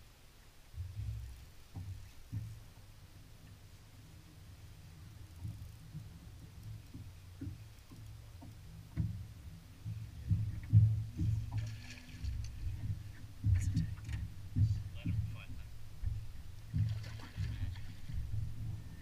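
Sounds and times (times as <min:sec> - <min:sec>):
knocks and thumps on boat hull: 0:00.8 - 0:02.6, 0:05.4 - 0:19.0
fish splashing water: 0:11.2 - 0:14.7, 0:16.0 - 0:19.0.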